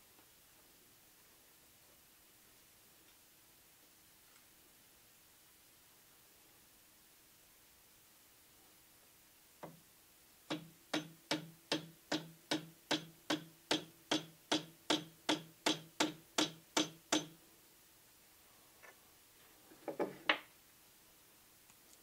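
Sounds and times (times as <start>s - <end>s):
mallet tapping steel punch: 10.5s - 17.4s.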